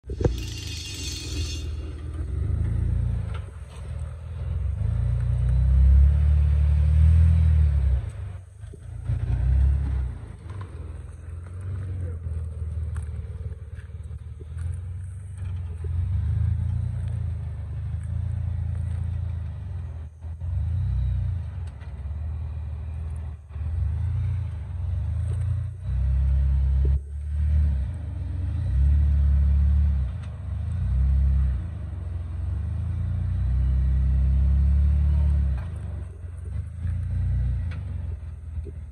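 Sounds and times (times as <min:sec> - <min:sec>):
car engine rumbling: 0:00.0 - 0:38.9.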